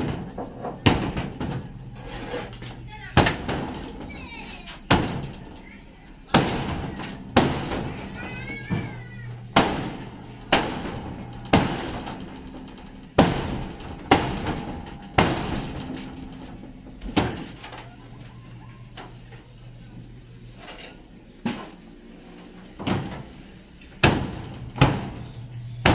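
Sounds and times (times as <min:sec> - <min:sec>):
hammer striking metal siding: 0:00.0 - 0:25.9.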